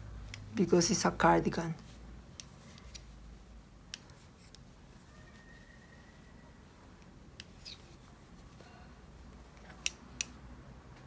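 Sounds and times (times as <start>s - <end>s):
knitting needles clicking: 0.2s - 0.5s, 9.3s - 10.6s.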